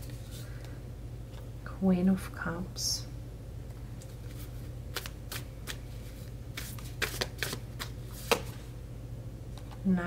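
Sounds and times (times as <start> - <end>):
cards snapping and slapping: 4.9 - 5.8, 6.5 - 8.6.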